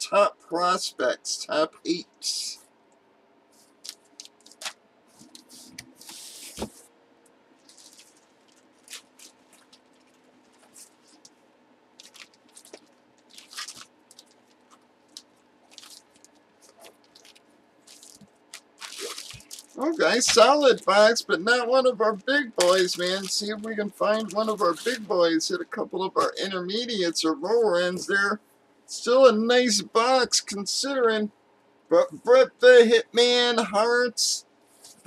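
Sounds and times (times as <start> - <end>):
cardboard box rustling: 4.5 - 6.8, 15.7 - 20.4.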